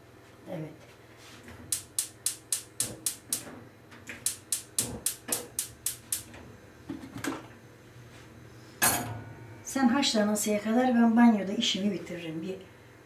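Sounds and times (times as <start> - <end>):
gas hob igniter clicking: 1.7 - 3.5, 4.1 - 6.4.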